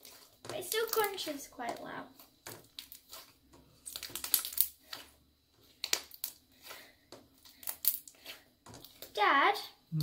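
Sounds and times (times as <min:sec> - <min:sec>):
slime crunching and crackling: 0:00.0 - 0:05.0, 0:05.6 - 0:09.2.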